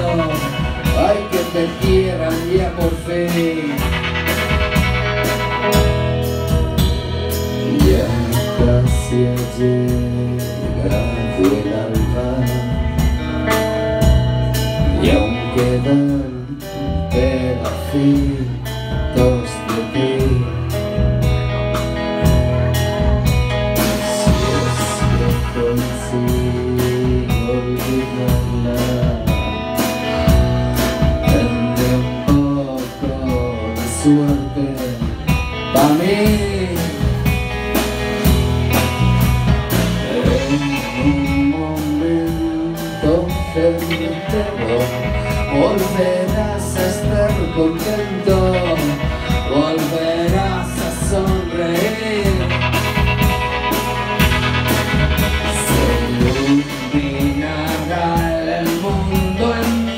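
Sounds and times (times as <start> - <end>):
lead guitar pitch bends: 0.0 - 14.5, 21.2 - 30.4, 38.2 - 59.9
live rock band playing: 0.0 - 59.9.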